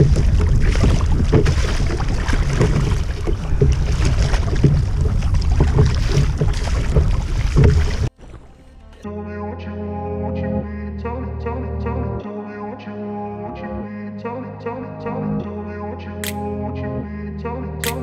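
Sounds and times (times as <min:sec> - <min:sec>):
wind buffeting microphone: 0:00.0 - 0:08.1
kayak paddle splashing in water: 0:00.0 - 0:08.8.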